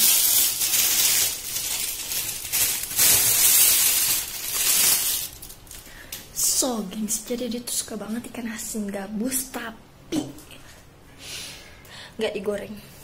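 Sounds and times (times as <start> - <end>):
crinkling and rustling handling noise: 0.0 - 6.2.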